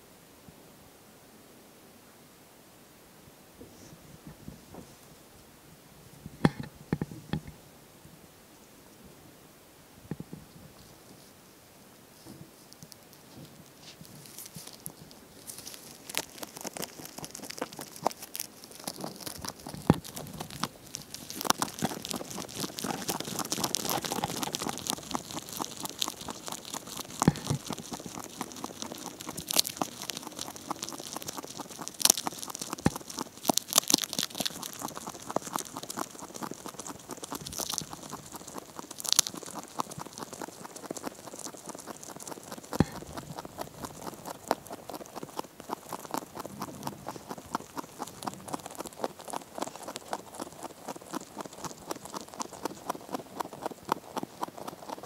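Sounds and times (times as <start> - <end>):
rabbit chewing hay: 12.1 - 55.0.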